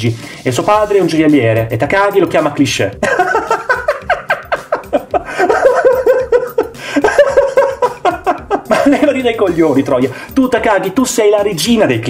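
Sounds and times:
young man laughing high-pitched: 3.0s - 9.2s.

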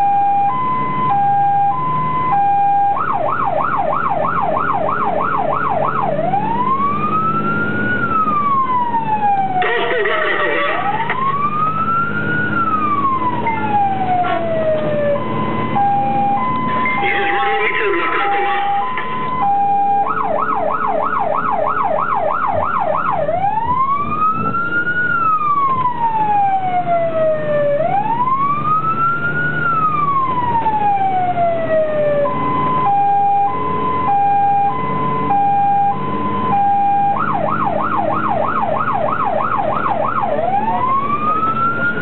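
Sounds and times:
fire truck siren: 0.0s - 42.0s
truck engine running: 6.2s - 21.6s.

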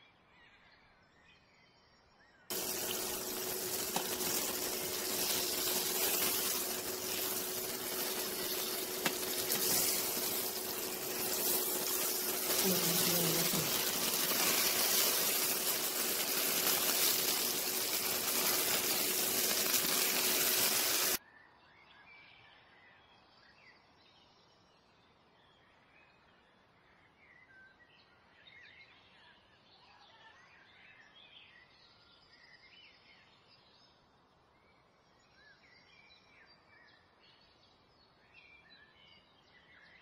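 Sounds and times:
chicken sizzling in hot oil: 2.5s - 21.2s.

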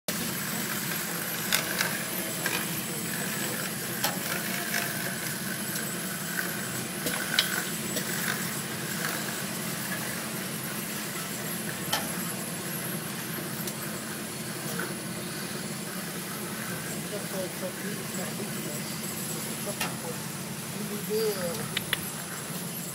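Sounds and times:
machine mechanical hum: 0.1s - 22.9s
sharp clicks: 21.5s - 22.2s.

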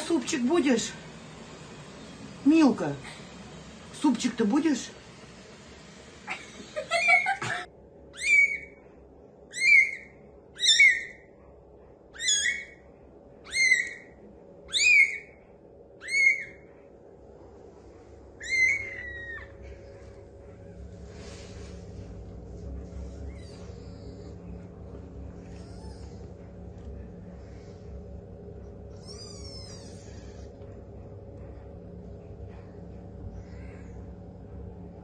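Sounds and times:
kitten mewing: 25.5s - 26.3s, 29.0s - 30.5s.

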